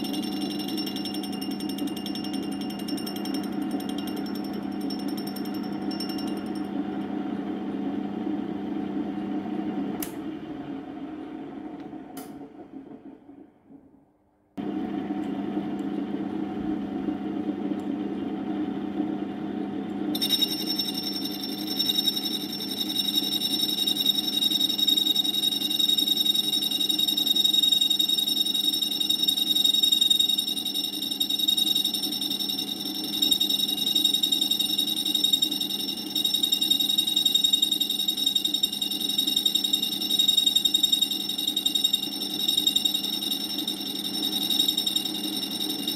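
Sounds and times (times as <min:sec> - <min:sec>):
high-pitched grinding whine: 0:00.0 - 0:06.7, 0:20.2 - 0:45.9
grinder machine hum: 0:19.7 - 0:38.1.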